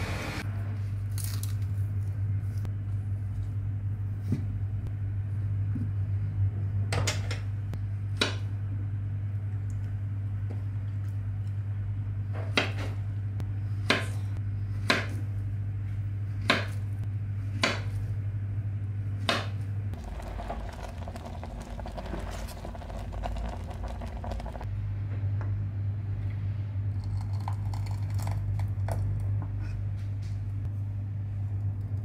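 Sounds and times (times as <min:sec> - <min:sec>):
steady low hum: 0:13.0 - 0:32.0
liquid bubbling in a pot: 0:20.0 - 0:24.7.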